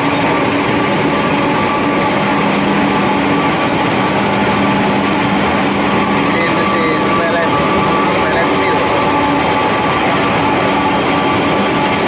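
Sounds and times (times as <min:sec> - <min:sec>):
industrial machines din: 0:00.0 - 0:12.0.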